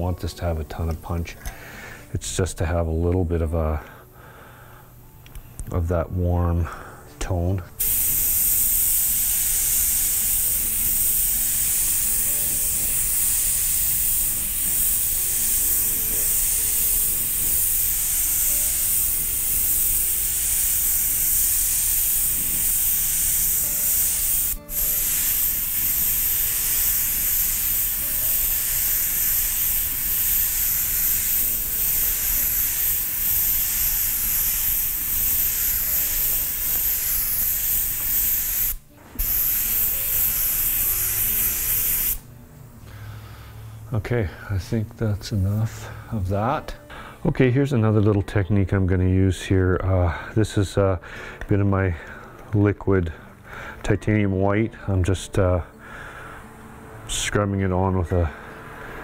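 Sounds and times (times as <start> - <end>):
airbrush hissing: 7.7 - 46.3.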